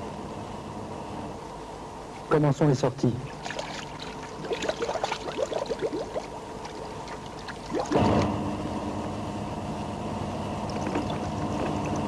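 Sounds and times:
steady multi-tone hum: 0.0s - 12.0s
air bubbles gurgling in water: 3.4s - 8.1s, 10.7s - 12.0s.

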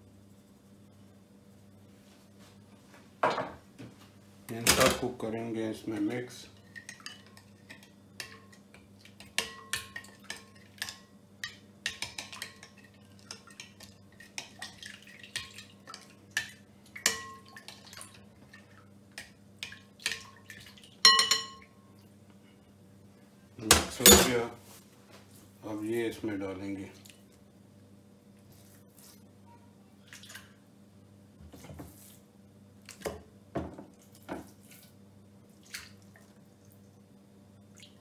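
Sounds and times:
fork clinking against glass bowl: 9.4s - 12.8s, 21.0s - 21.7s.

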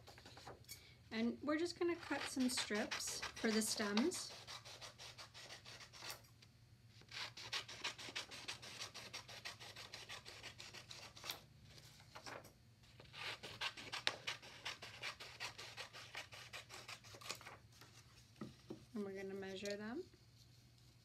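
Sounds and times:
scissors cutting paper: 1.9s - 6.2s, 7.1s - 11.4s, 13.0s - 17.6s.

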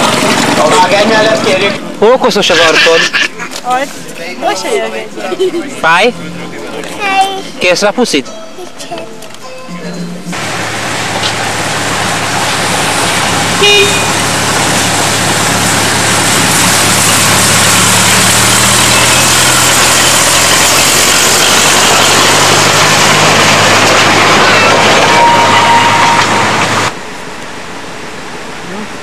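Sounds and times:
locomotive engine drone: 0.0s - 8.0s, 8.7s - 29.0s
locomotive horn toot: 13.2s - 14.5s, 18.7s - 19.7s, 24.3s - 26.9s.

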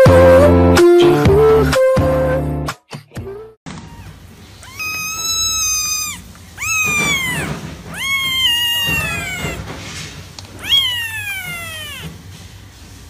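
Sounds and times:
kitten meowing: 3.8s - 9.7s, 10.6s - 12.1s.

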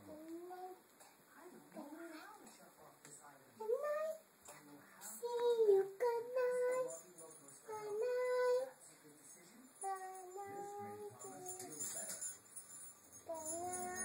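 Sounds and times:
girl singing in high voice: 3.6s - 4.2s, 5.2s - 7.0s, 7.7s - 8.7s, 9.8s - 11.6s, 13.3s - 14.0s.

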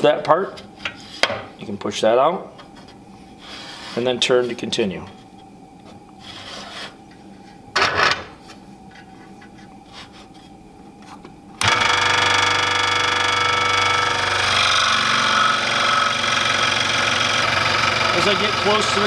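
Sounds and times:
scroll saw running: 11.6s - 19.0s.

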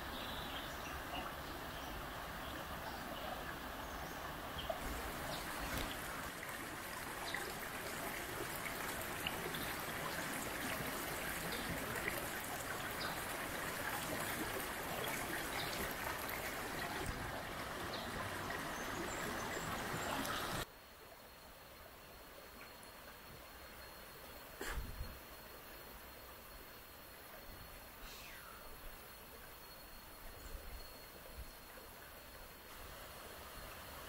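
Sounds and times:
stream water running: 0.0s - 20.7s, 24.4s - 34.0s.

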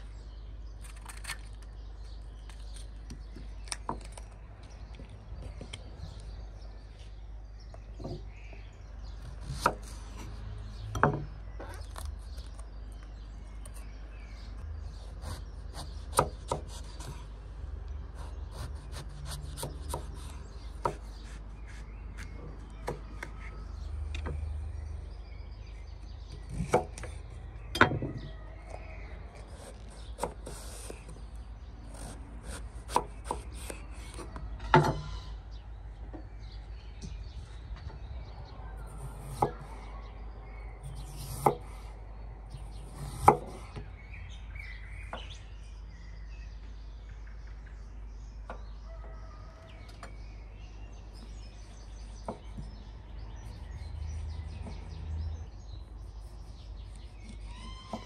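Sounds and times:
birds chirping: 0.0s - 58.0s
knife chopping on wooden board: 15.3s - 17.2s, 18.6s - 23.4s, 32.4s - 35.0s, 42.8s - 43.6s.

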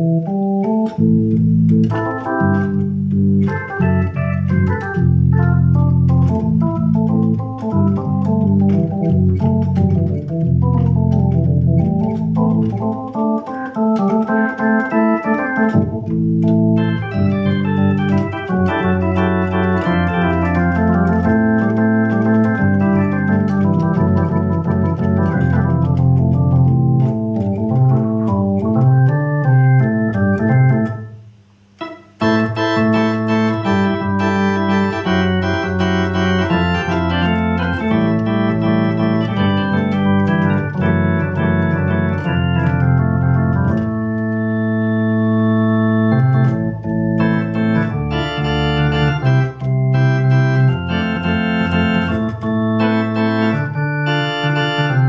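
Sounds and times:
electric organ playing chords: 0.0s - 55.0s.

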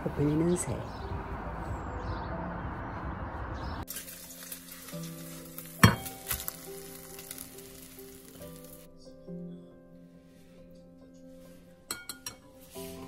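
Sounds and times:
outdoor noise: 0.0s - 13.0s
soft background music: 0.0s - 13.0s
tableware clinking: 11.9s - 12.5s.

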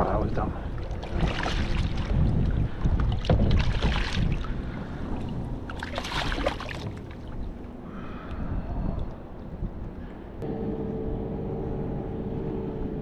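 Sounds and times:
steady low rumble: 0.0s - 13.0s
fish splashing at water surface: 5.7s - 7.4s.

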